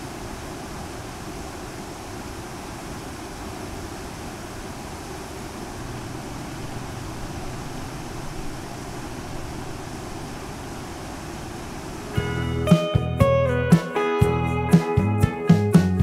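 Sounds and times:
road noise: 0:04.8 - 0:12.7
wind rushing: 0:04.8 - 0:12.7
motorcycle engine hum: 0:05.6 - 0:12.7.

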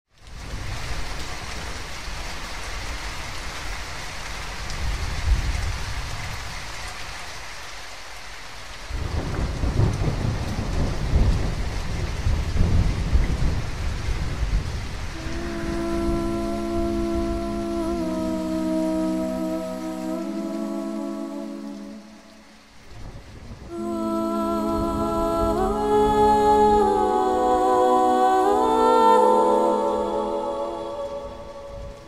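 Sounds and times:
steady rain: 0:00.1 - 0:32.0
rumbling thunder: 0:09.0 - 0:15.2.

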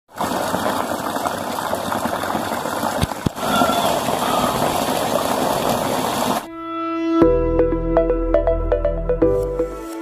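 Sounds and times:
heavy rain hissing: 0:00.1 - 0:06.5
rainwater splashing into a basin: 0:00.1 - 0:06.5.

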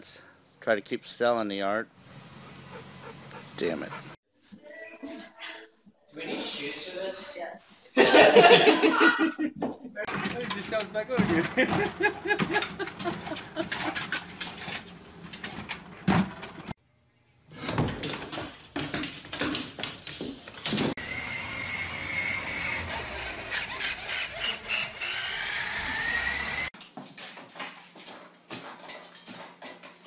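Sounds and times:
toy car electric motor whine: 0:21.0 - 0:26.7.

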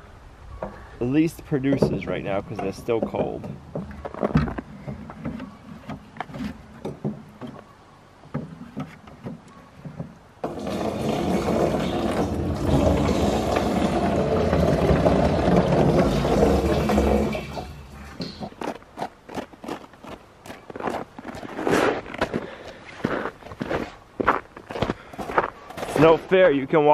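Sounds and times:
bucket knocking: 0:01.7 - 0:06.1, 0:08.3 - 0:18.7
liquid gushing into a drum: 0:10.4 - 0:18.5.

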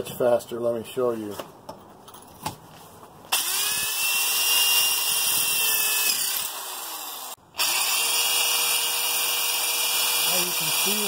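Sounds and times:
electric drill boring into brick: 0:03.3 - 0:11.0.

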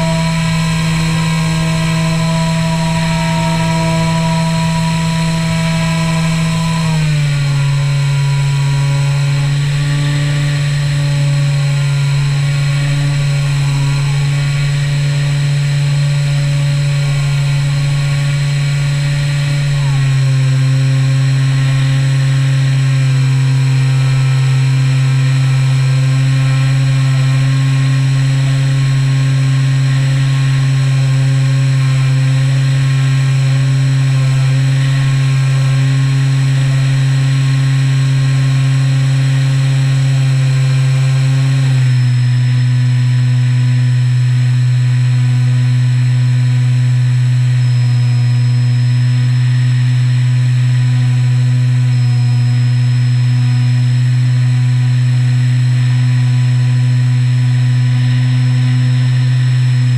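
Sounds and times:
model plane motor and propeller droning: 0:00.0 - 0:59.9.

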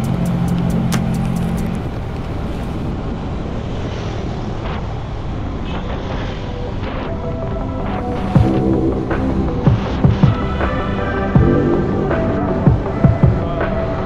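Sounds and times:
motorbike engine and road noise: 0:00.0 - 0:07.6.

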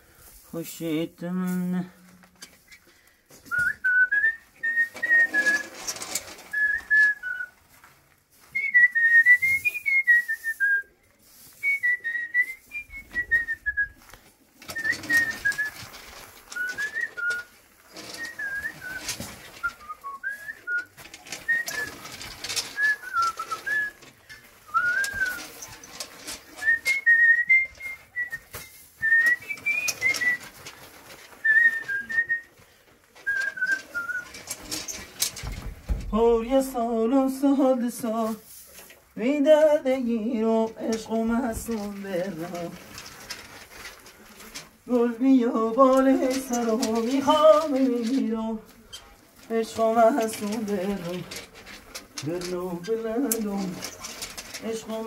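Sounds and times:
person whistling a tune: 0:03.5 - 0:05.7, 0:08.6 - 0:10.9, 0:11.6 - 0:14.0, 0:18.2 - 0:22.0, 0:22.8 - 0:24.0, 0:24.7 - 0:25.5, 0:26.6 - 0:30.5, 0:31.4 - 0:32.5, 0:33.3 - 0:34.3
short irregular noises: 0:03.6 - 0:07.6.

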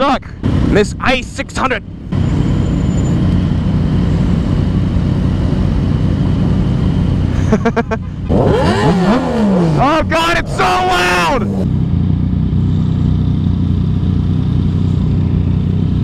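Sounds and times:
motorcycles idling: 0:00.4 - 0:16.0
motorcycle engine revving: 0:08.2 - 0:16.0
person remarking: 0:09.7 - 0:11.6.

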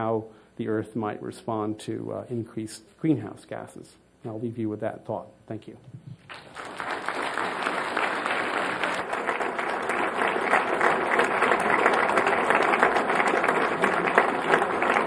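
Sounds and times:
audience applauding: 0:06.2 - 0:15.0.

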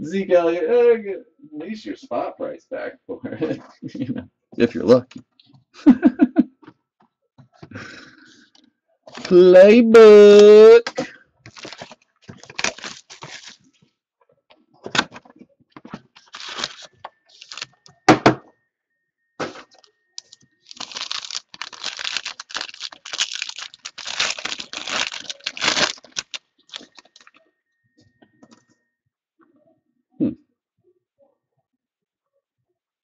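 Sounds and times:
cardboard box cracking and ripping: 0:11.5 - 0:13.6, 0:16.2 - 0:17.6, 0:20.7 - 0:27.2
foil wrapper tearing and crinkling: 0:11.5 - 0:13.7, 0:16.2 - 0:17.8, 0:20.2 - 0:27.3.

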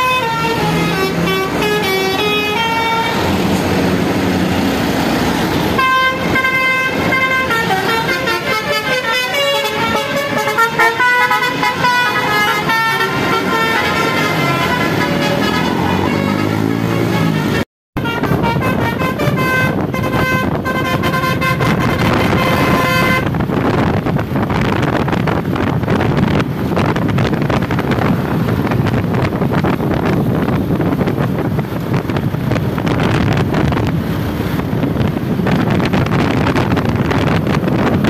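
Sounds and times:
multi-tone bus horn tune: 0:00.0 - 0:04.5, 0:05.6 - 0:23.5
bus engine and road noise: 0:00.0 - 0:38.0
motorcycles passing: 0:00.0 - 0:38.0.

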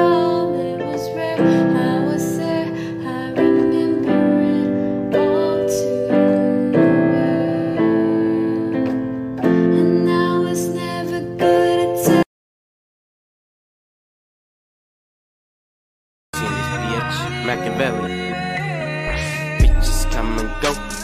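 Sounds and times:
electric keyboard chords: 0:00.0 - 0:12.3.

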